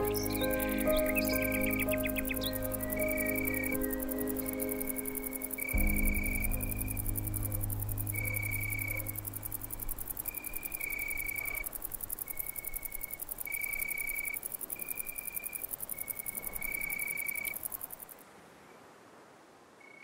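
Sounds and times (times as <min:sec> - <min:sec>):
high held tones: 0:00.0 - 0:12.0
crickets chirring: 0:00.0 - 0:18.2.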